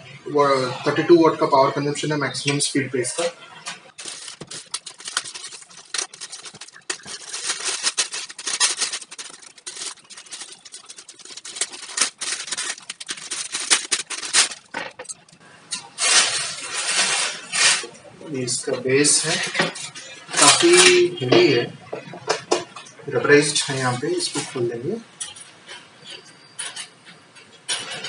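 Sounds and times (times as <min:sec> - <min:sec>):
plastic bag crinkling: 0:03.9 - 0:15.4.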